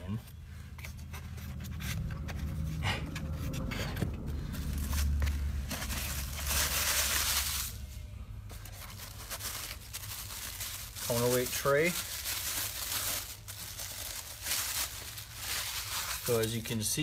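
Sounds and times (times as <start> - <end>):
steady low hum: 0.0 - 11.1
plastic wrapping rustling: 0.5 - 17.0
styrofoam squeaking and scraping: 4.7 - 7.8, 8.6 - 17.0.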